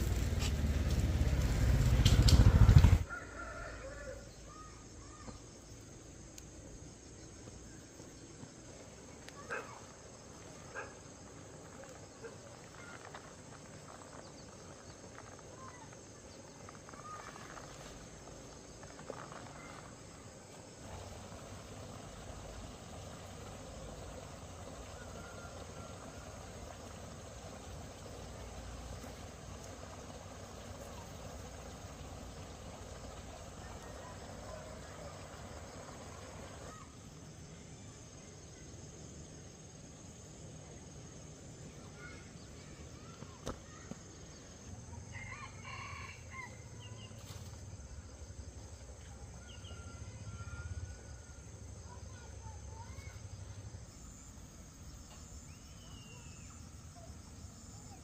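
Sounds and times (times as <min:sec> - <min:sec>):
insect buzz: 0:00.0 - 0:58.0
rooster crowing: 0:02.9 - 0:04.4, 0:24.9 - 0:26.4, 0:45.1 - 0:46.7.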